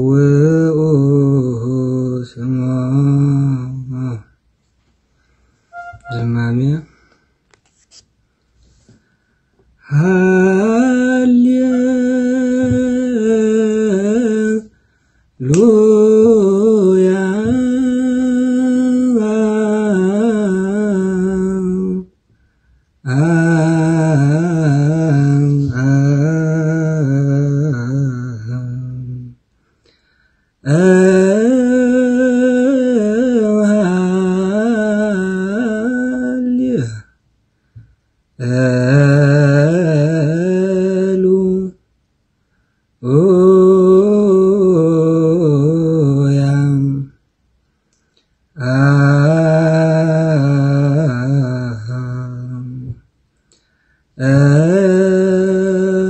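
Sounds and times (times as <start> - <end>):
short breath: 5.1 - 5.8, 8.3 - 9.8, 14.7 - 15.4, 22.3 - 23.0, 29.5 - 30.6, 42.4 - 43.0, 53.4 - 54.2
man chanting a hymn: 5.7 - 7.0, 9.8 - 14.8, 15.4 - 22.1, 23.0 - 29.4, 48.6 - 53.0, 54.2 - 56.0.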